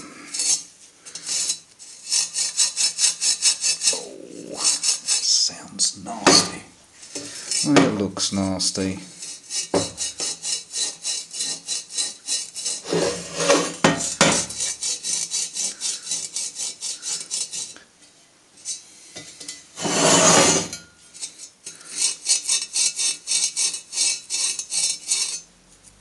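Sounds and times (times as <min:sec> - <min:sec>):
abrasive pad scrubbing metal: 0:01.2 - 0:06.6, 0:07.2 - 0:17.8.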